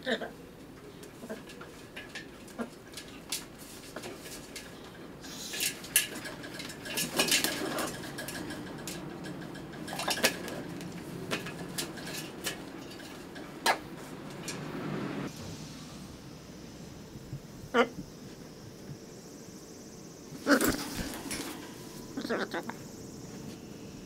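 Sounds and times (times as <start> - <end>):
clinks and knocks against metal tub: 1.3 - 14.6.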